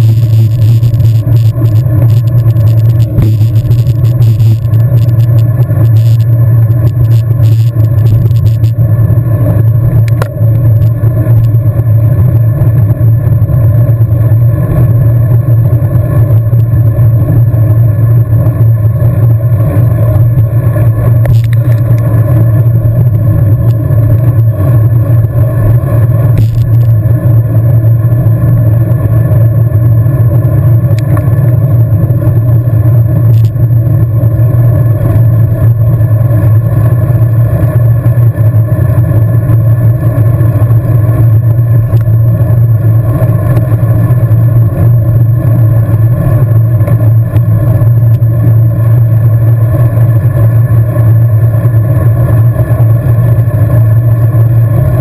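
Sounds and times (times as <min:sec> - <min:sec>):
wind and road noise rumble: 0:00.0 - 0:55.0.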